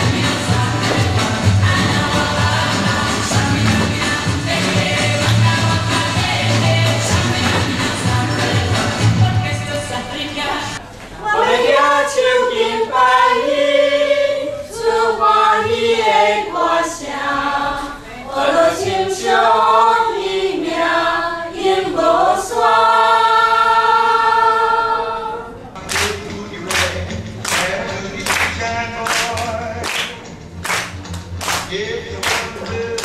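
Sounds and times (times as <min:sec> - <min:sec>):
choir singing a cappella: 0:00.0 - 0:25.7.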